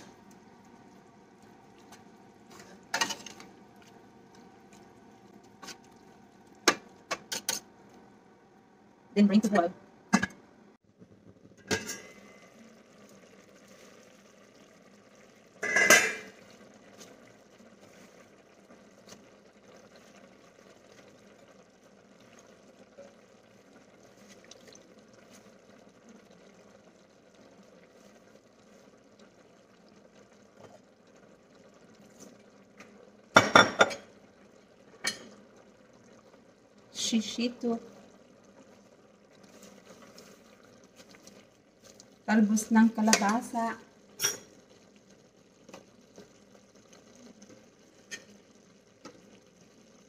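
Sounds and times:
stew simmering: 0.0 - 50.0
kitchenware clattering: 11.6 - 12.2, 15.6 - 16.4, 33.4 - 34.1
pot lid clanking down: 15.6 - 16.3.

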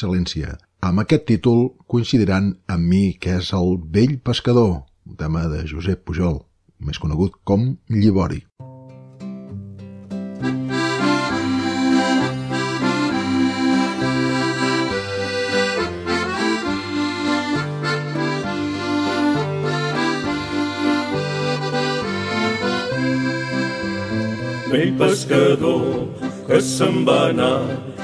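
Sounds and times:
accordion playing a slow waltz: 10.4 - 28.0.

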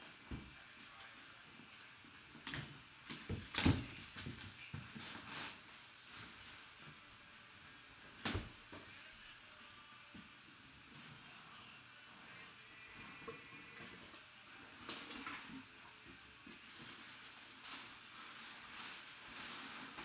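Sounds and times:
plastic shrink wrap crinkling: 2.4 - 7.0, 16.6 - 20.0.

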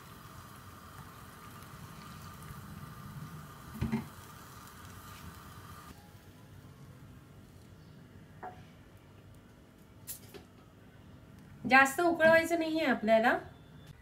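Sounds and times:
liquid simmering and bubbling: 0.0 - 6.0.

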